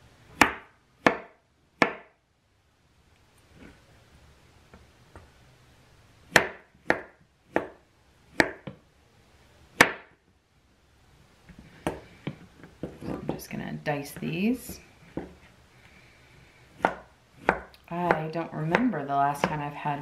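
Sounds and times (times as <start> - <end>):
knife chopping on cutting board: 0.4 - 2.1, 6.3 - 8.8, 9.8 - 10.2, 16.8 - 19.7.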